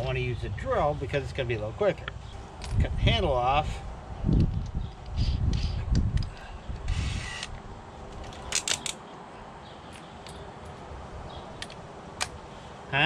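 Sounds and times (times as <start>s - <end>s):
drill chuck rattle: 4.6s - 7.6s
sharp clicks of drill chuck: 5.0s - 7.6s.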